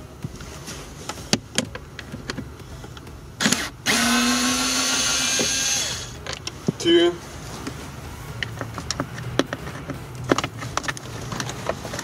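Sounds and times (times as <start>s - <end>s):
electric screwdriver motor whining: 3.4s - 6.2s.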